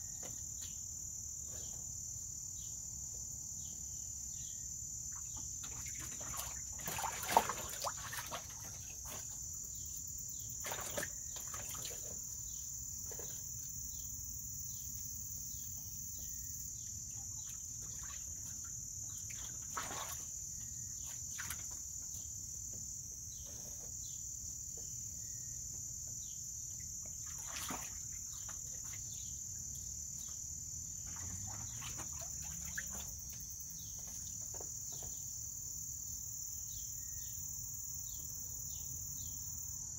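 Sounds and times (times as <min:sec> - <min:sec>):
animal splashing in a pool: 0:05.1 - 0:13.4, 0:17.0 - 0:22.3, 0:26.8 - 0:34.6.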